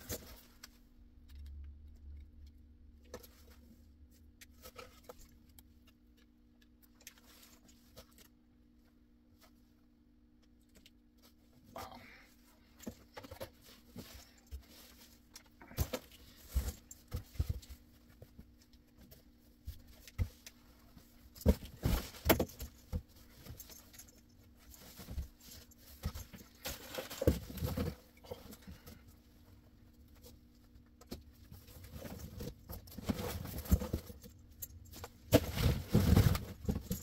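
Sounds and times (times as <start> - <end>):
plush toys rustling in cardboard box: 12.9 - 29.1, 31.4 - 37.0.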